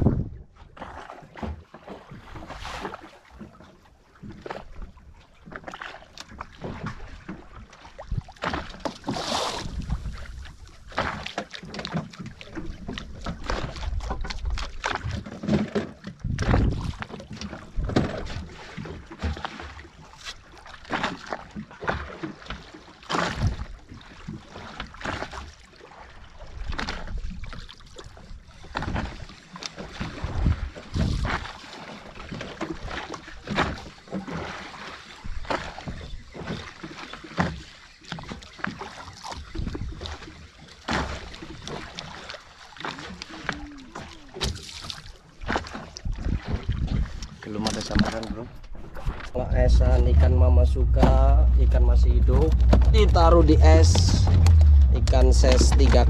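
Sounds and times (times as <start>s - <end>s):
water splashing against boat hull: 0.0s - 56.0s
low thumps: 49.4s - 56.0s.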